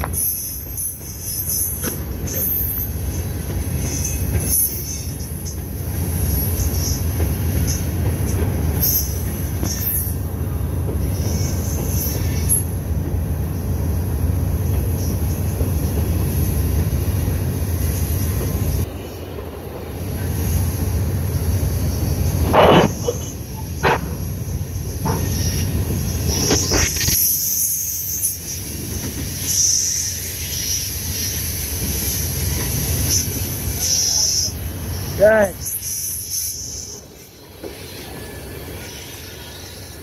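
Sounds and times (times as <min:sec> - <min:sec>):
freight train rumbling past: 0:00.0 - 0:40.0
high-pitched metallic squeals: 0:35.6 - 0:40.0.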